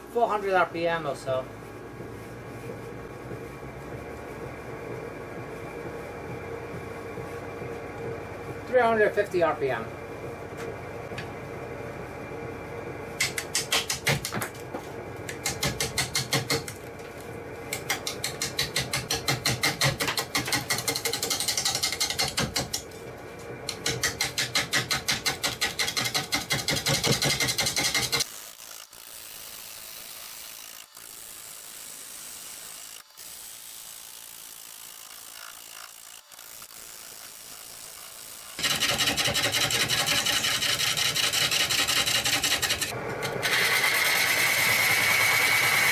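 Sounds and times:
gouge cutting wood on lathe: 17.8 - 22.9, 23.7 - 45.9.

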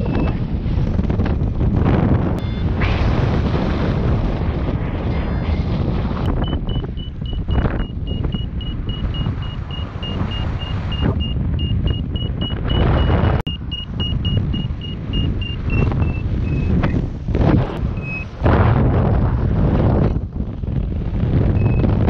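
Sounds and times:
wind rush on microphone: 0.0 - 22.0
high-pitched electronic beeping: 2.4 - 2.7, 6.3 - 16.7.

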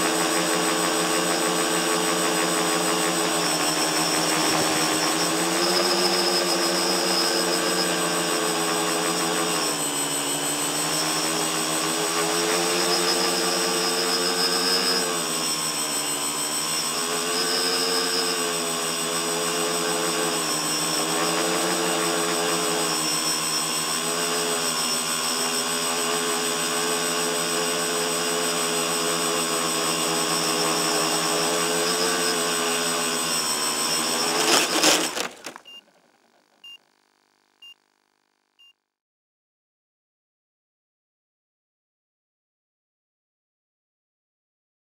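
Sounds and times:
drone motors and propellers whining: 0.0 - 35.8.

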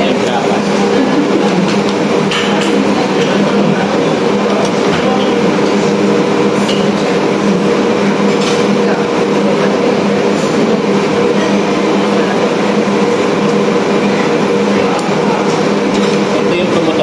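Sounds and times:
mechanical hum with rushing: 0.0 - 17.0.

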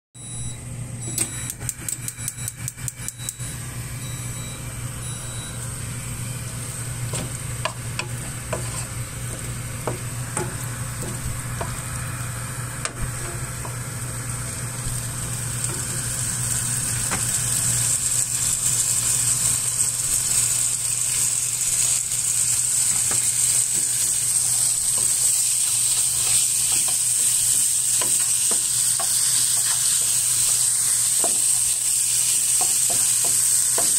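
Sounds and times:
low hum: 0.2 - 17.4
meat sizzling in a pan: 5.9 - 33.9
wooden spatula stirring: 8.0 - 11.2.

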